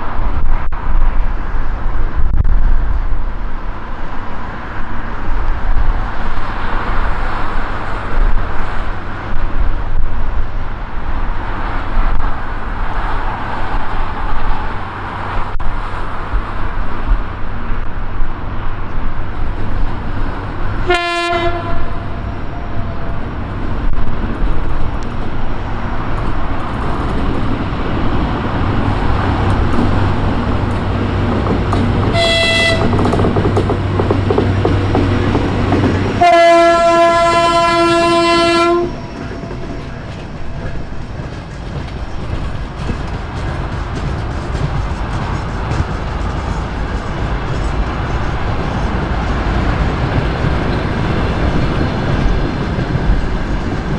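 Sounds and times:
diesel locomotive engine drone: 0.0s - 53.9s
locomotive horn blasts: 20.8s - 23.0s, 32.1s - 33.1s, 36.2s - 39.1s.

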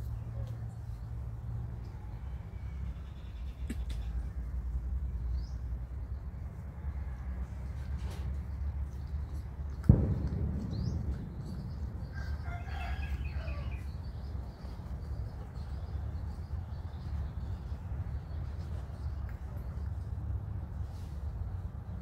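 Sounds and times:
sharp thump: 9.8s - 12.5s.

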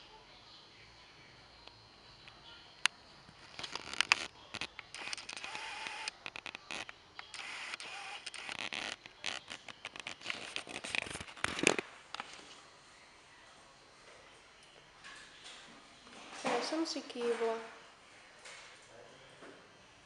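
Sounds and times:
sharp clicks: 3.7s - 10.6s
rustling and scraping: 8.5s - 12.7s.

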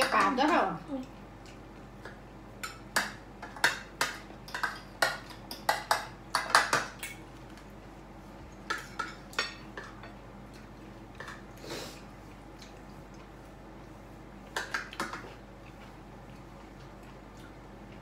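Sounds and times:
forks and shells clinking on plates: 2.0s - 7.2s.

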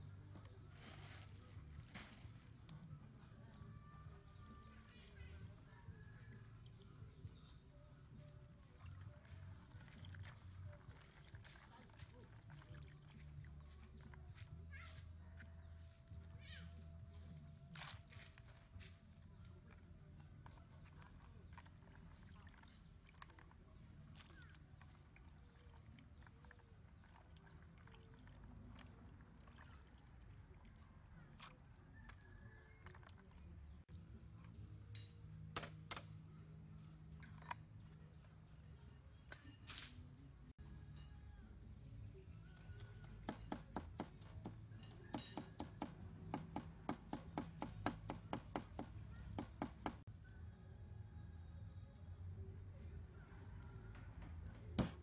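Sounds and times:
water sloshing in a basin: 0.0s - 16.3s, 19.2s - 34.8s, 36.7s - 40.1s
cleaver chopping on wooden block: 43.2s - 44.5s, 45.1s - 50.0s.

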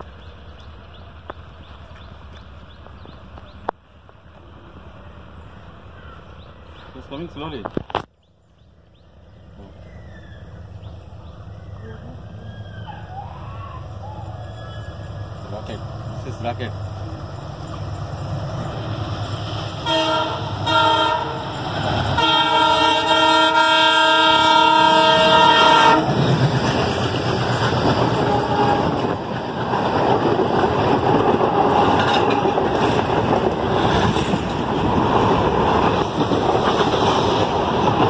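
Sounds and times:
train coaches rumbling and clattering: 0.0s - 38.0s
locomotive horn blasts: 19.8s - 21.5s, 22.1s - 26.2s, 28.2s - 29.1s.

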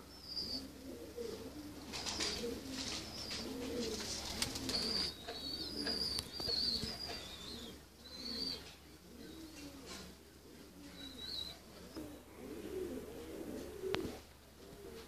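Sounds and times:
small birds chirping: 0.0s - 10.0s, 10.8s - 12.3s
pigeons cooing: 0.0s - 15.0s.

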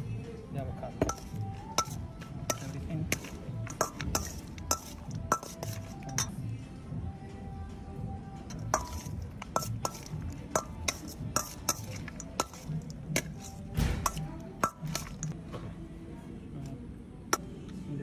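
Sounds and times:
background music: 0.0s - 18.0s
metal spoon clinking in steel bowl: 1.0s - 6.5s, 8.5s - 15.4s.

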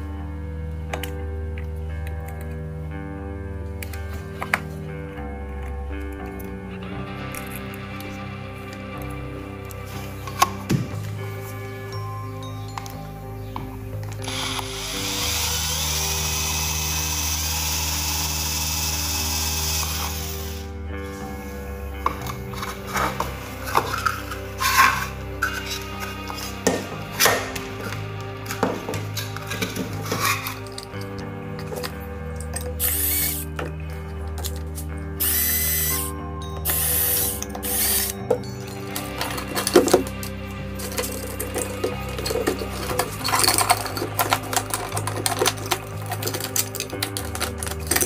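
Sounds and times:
background music: 0.0s - 48.0s
power drill drilling plastic: 14.2s - 20.7s, 32.8s - 33.4s, 35.2s - 36.1s, 36.7s - 38.2s.

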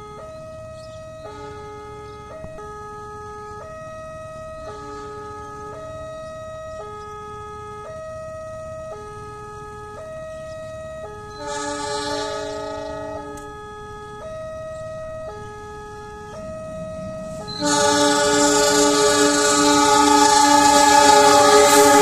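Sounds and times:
level-crossing warning alarm: 0.0s - 22.0s
low steady rumble: 11.5s - 20.7s.

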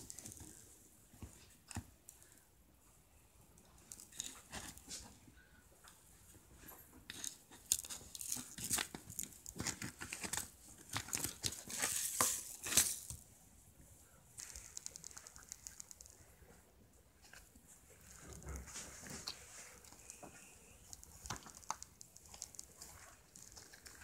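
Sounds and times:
beaded slime clicking and crackling: 7.1s - 13.2s, 14.4s - 16.2s, 19.2s - 24.0s.

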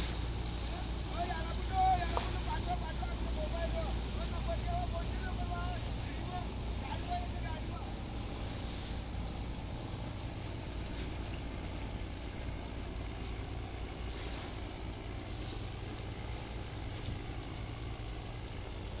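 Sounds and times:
boat engine droning: 0.0s - 19.0s
water splashing along hull: 0.0s - 19.0s.

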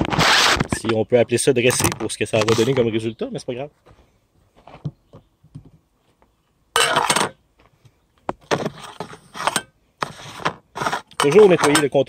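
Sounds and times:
wipe scraping metal plate: 8.5s - 12.0s.

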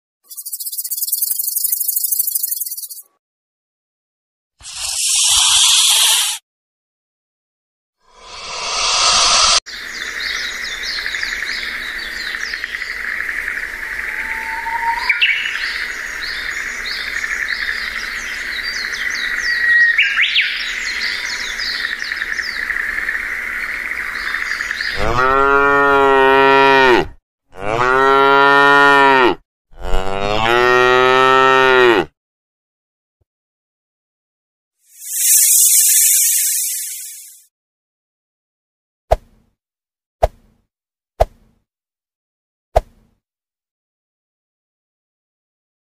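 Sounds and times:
insects calling: 0.3s - 3.0s, 9.0s - 25.0s, 34.9s - 37.4s
short rising whistles: 34.9s - 37.4s.

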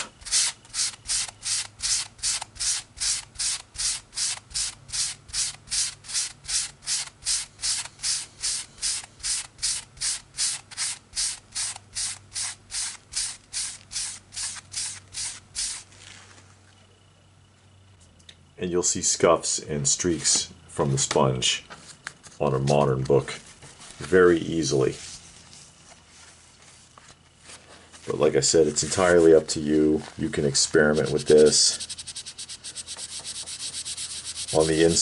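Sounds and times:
sponge scrubbing paper: 30.6s - 35.0s.

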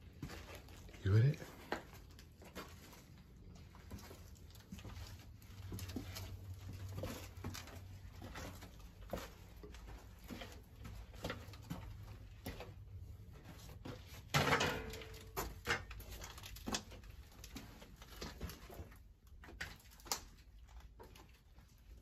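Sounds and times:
footsteps and scuffing: 0.0s - 22.0s.

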